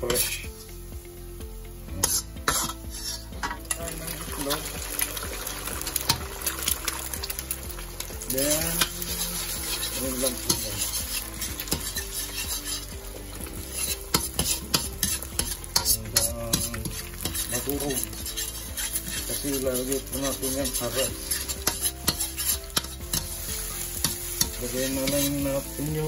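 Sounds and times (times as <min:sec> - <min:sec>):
metal spoon scraping a pan: 0:00.0 - 0:00.8, 0:01.9 - 0:03.8, 0:06.0 - 0:06.2, 0:08.2 - 0:26.0
eggs sizzling in hot oil: 0:00.0 - 0:26.0.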